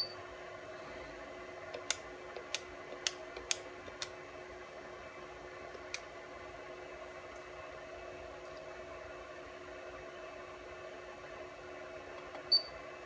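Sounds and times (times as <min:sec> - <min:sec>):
fan-like hum: 0:00.0 - 0:13.0
sharp clicks: 0:01.8 - 0:04.1.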